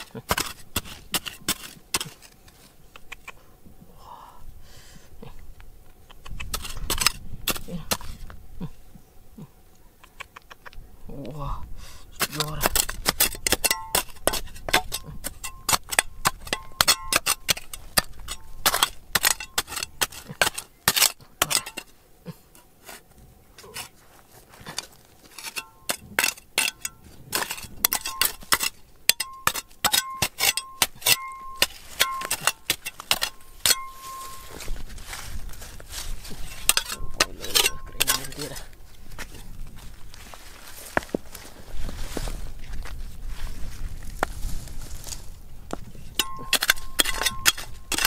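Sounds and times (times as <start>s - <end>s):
metal tool striking rock: 0.0s - 2.4s, 12.2s - 22.0s, 24.7s - 34.7s, 36.4s - 38.7s, 46.2s - 48.0s.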